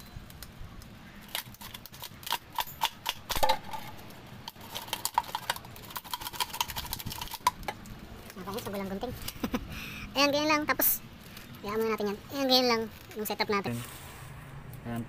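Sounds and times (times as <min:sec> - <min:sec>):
tape crackling: 0:00.0 - 0:14.9.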